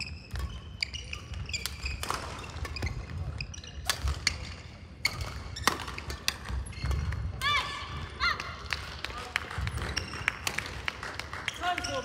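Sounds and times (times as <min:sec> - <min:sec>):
sneaker squeaks on court floor: 0:00.0 - 0:07.3, 0:09.8 - 0:10.4
racket hitting shuttlecock: 0:03.8 - 0:07.2.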